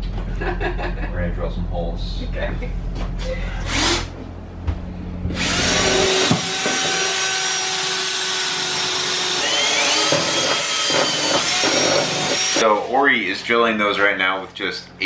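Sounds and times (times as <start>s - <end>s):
cordless drill whining: 3.6s - 4.1s, 5.3s - 12.6s.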